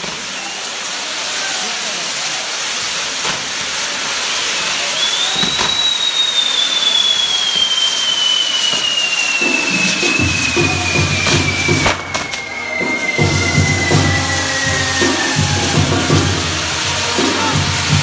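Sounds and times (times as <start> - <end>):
firework cracks: 0.0 - 18.0
fireworks hissing: 0.0 - 18.0
whistling firework: 0.0 - 18.0.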